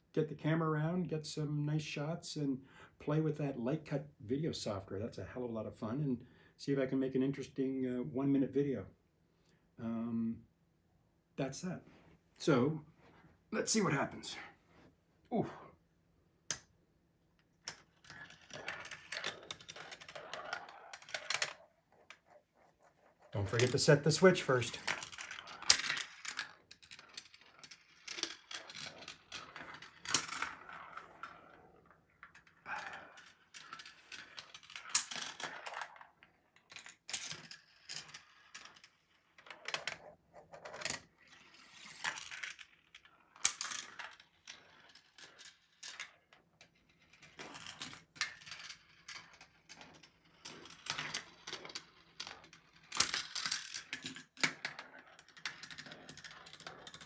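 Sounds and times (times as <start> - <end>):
marbles rolling on plastic rails: 17.4 - 57.0
marbles clicking and rattling: 17.6 - 22.4, 23.0 - 57.0.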